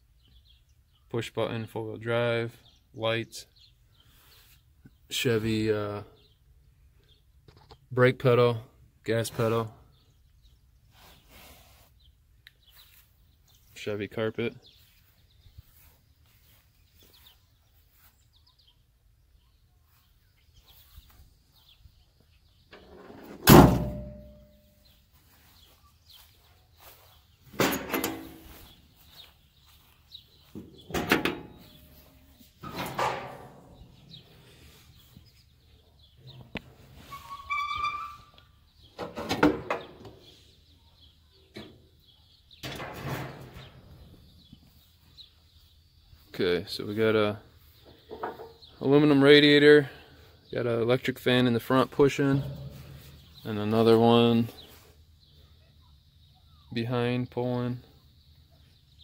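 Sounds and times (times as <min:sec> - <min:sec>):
metal truck door slamming: 0:23.2 - 0:24.6, 0:27.6 - 0:28.4, 0:30.8 - 0:31.6, 0:32.6 - 0:33.8, 0:42.6 - 0:43.8.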